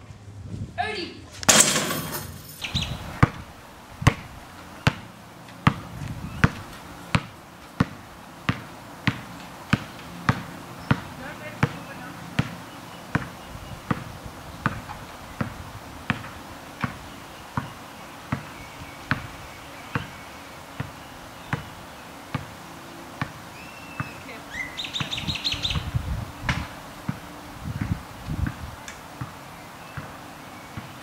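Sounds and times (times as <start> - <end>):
bird chirping and trilling: 2.6 - 3.4, 23.5 - 26.5
basketball bouncing on asphalt: 2.7 - 19.3, 19.9 - 20.2, 20.8 - 21.7, 22.3 - 22.6, 23.2 - 24.2, 24.8 - 30.2, 30.8 - 31.0.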